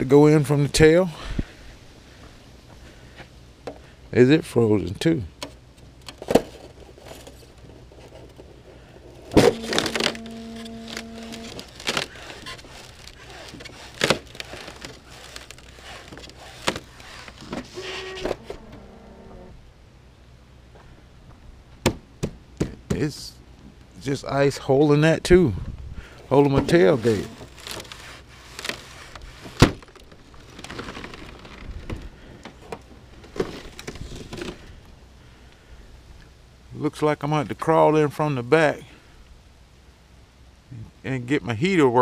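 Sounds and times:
small knocks and crackles: 9.3s - 18.6s, 26.4s - 34.7s
ice cracking: 9.5s - 17.4s, 26.8s - 32.0s.

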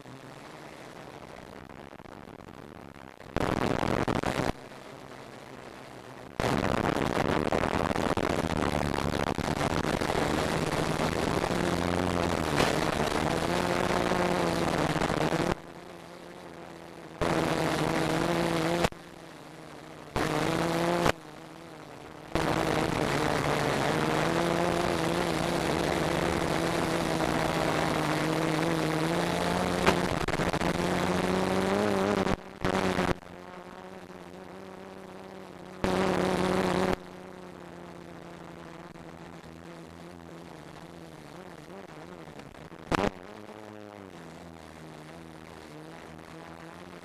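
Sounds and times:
quadcopter motors humming: 10.0s - 30.1s, 30.7s - 38.4s.

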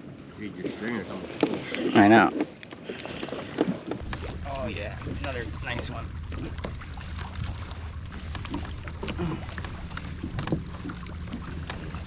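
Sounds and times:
small waves lapping against hull: 0.0s - 12.0s
low steady rumble: 3.8s - 12.0s.

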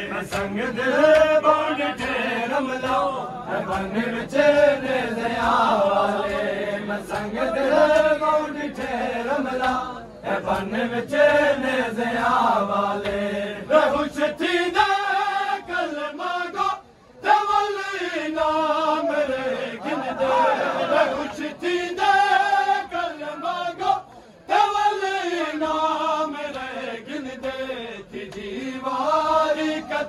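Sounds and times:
crowd of men chanting: 0.0s - 30.0s
slaps of chest-beating: 0.1s - 10.9s, 12.2s - 14.2s, 25.6s - 28.6s.

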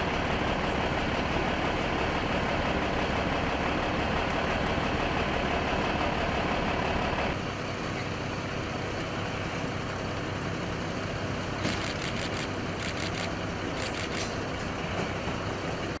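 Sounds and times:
vehicle engine idling: 0.0s - 16.0s
short clicks and rattles: 11.7s - 14.4s.

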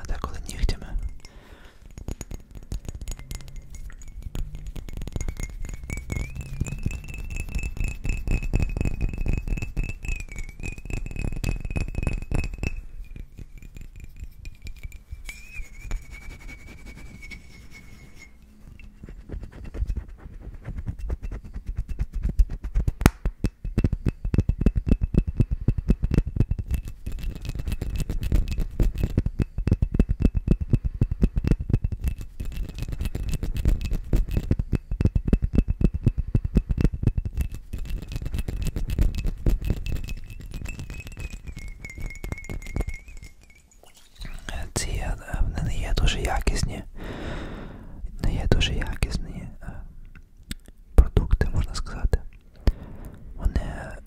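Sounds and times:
nails tapping on glass bottle: 0.0s - 19.0s, 22.8s - 46.8s.

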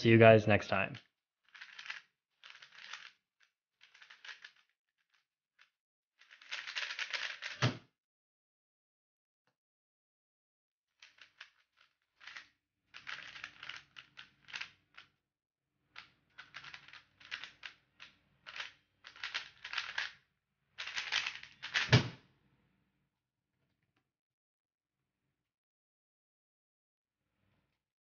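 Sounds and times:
plastic cube clicking turns: 1.5s - 3.2s, 3.8s - 5.2s, 6.2s - 7.6s, 12.2s - 15.0s, 16.0s - 20.2s, 20.8s - 22.0s.

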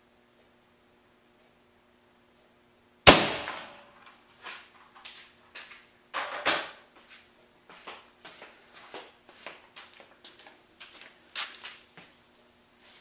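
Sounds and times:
air rifle shot: 3.1s - 3.9s.

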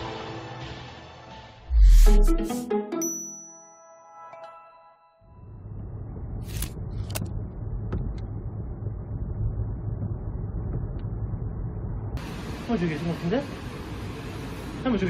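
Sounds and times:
car road and engine rumble: 5.4s - 15.0s.

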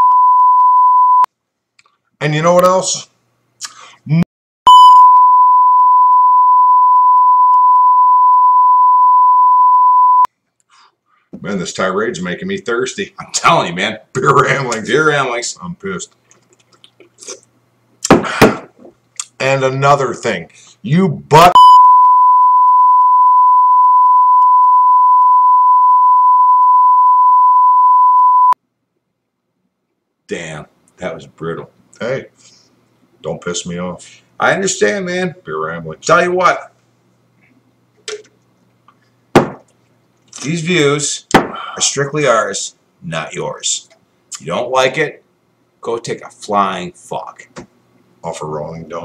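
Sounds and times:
steady beep tone: 0.0s - 1.3s, 4.7s - 10.3s, 21.5s - 28.6s.

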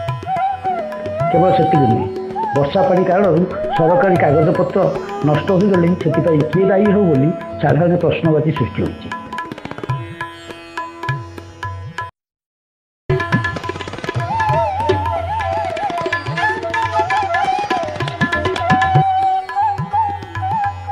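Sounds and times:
wavering melody over drums: 0.0s - 7.6s
instrumental music with hand drums: 0.0s - 10.2s, 13.1s - 20.9s.

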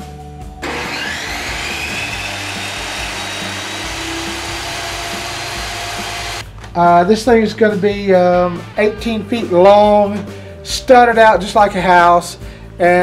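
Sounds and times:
saw ripping wood: 0.6s - 6.4s
table saw whine: 0.6s - 6.4s.

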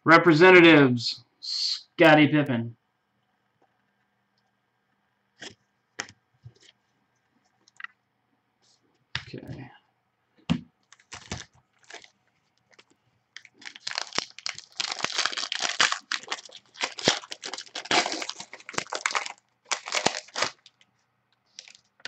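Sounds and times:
foil wrapper tearing and crinkling: 10.9s - 12.1s, 12.7s - 20.8s, 21.5s - 22.0s.

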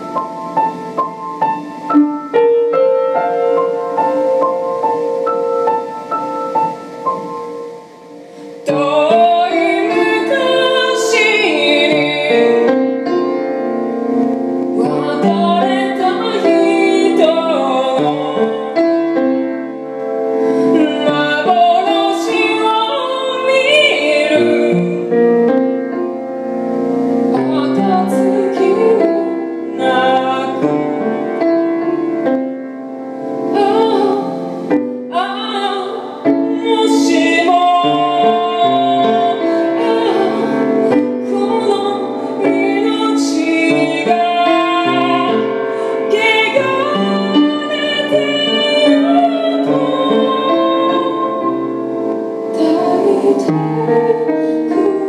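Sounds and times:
piano chords: 0.0s - 55.0s
woman singing with vibrato: 8.6s - 13.2s, 14.8s - 19.2s, 20.4s - 25.2s, 27.3s - 31.5s, 33.4s - 55.0s.

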